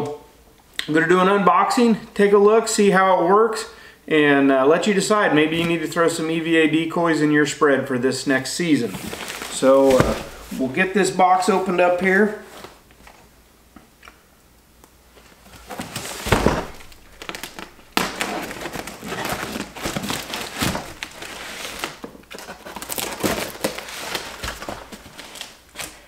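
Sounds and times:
cardboard packaging crinkling: 8.8 - 11.0, 15.1 - 26.0.

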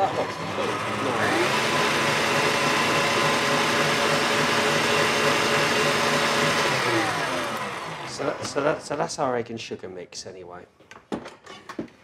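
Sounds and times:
whisk churning batter: 0.0 - 9.0
stand mixer motor whine: 0.0 - 9.1.

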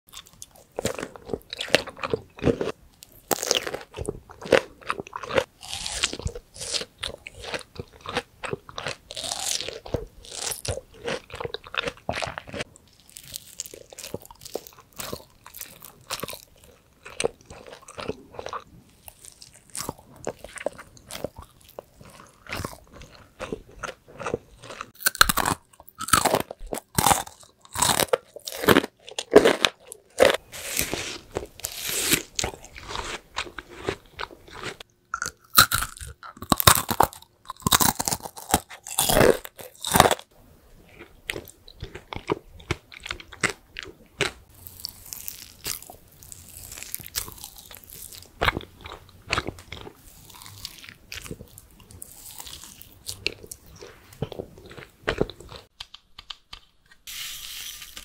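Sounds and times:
mouth chewing wet food: 0.1 - 56.7
sticky lip clicks: 55.7 - 57.1.

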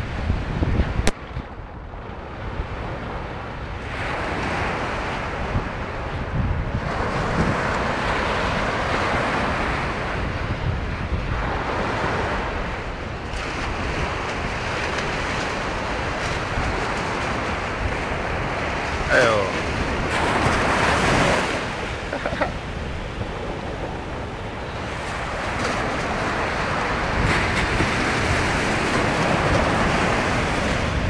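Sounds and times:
wind buffeting microphone: 0.0 - 31.0
surf breaking on beach: 2.2 - 31.0.

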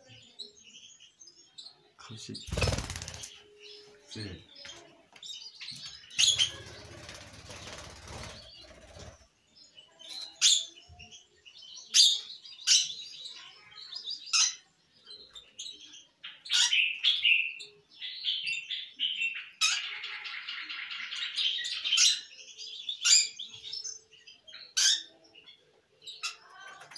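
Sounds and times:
lovebirds chirping: 0.0 - 26.9
wings flapping: 2.5 - 3.4, 6.2 - 9.2.

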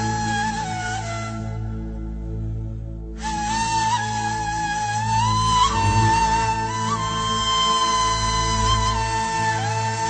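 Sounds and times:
low drone: 0.0 - 8.9
gliding melody: 4.1 - 8.9.

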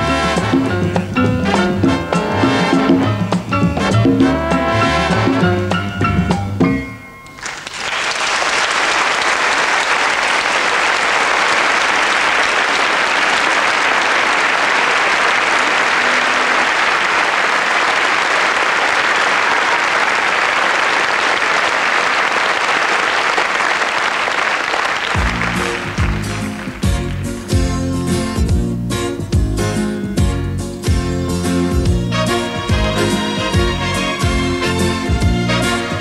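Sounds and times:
audience applauding: 7.3 - 27.5.

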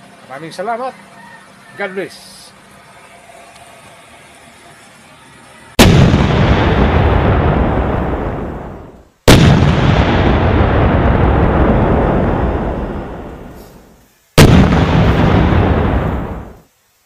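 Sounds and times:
loud booms with rumble: 5.8 - 13.6, 14.4 - 16.6.

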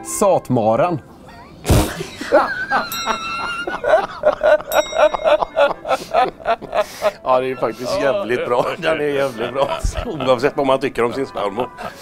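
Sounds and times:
high giggling: 1.3 - 12.0
men laughing: 1.7 - 12.0.

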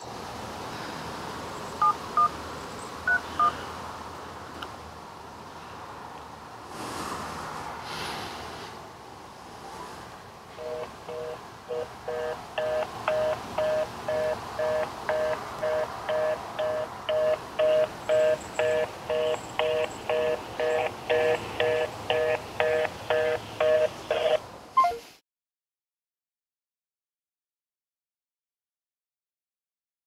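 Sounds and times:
two-tone busy beep: 3.1 - 3.6, 10.6 - 25.1.

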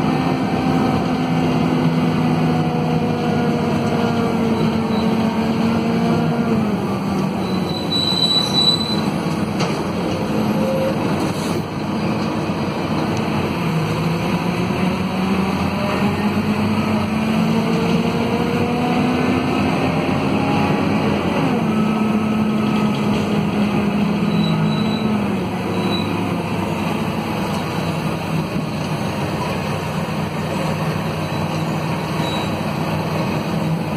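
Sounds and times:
bus engine and drivetrain whine: 0.0 - 33.9
brief high squeal: 7.4 - 9.1, 24.3 - 26.2, 31.2 - 32.6.

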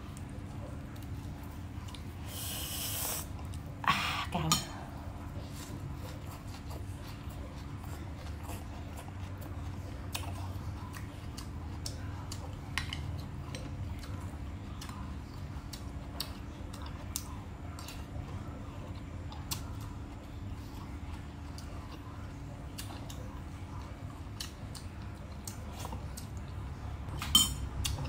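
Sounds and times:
chewing clicks: 19.3 - 20.0, 24.3 - 26.6
spoon clinking in a ceramic bowl: 27.2 - 27.6.

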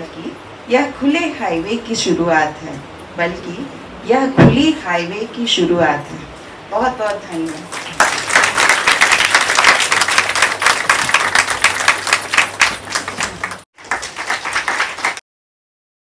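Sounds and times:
audience applauding: 7.6 - 15.2.

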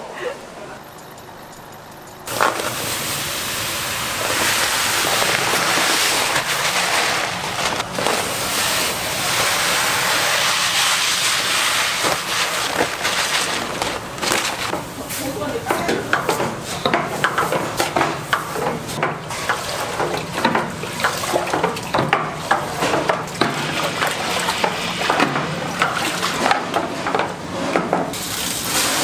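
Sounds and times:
rice pouring into metal tank: 2.3 - 15.6, 28.1 - 29.0.

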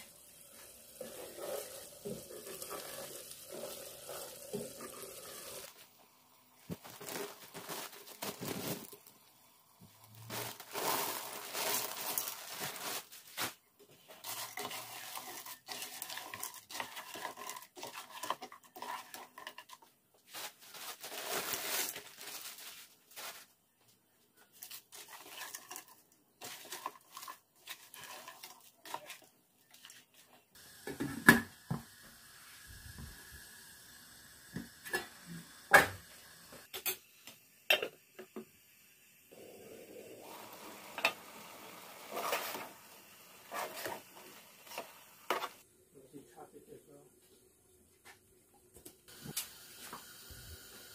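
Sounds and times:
beans stirred in sauce: 0.0 - 13.2, 13.8 - 22.1, 24.5 - 30.7, 40.3 - 45.6
plastic bag crinkling: 6.7 - 9.2, 10.1 - 13.6, 20.3 - 23.5.

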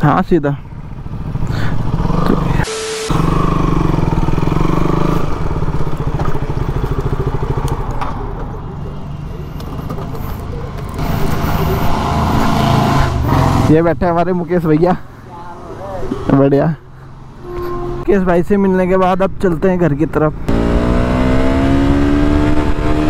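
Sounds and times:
motorcycle engine at low revs: 0.6 - 8.6, 20.5 - 23.0.

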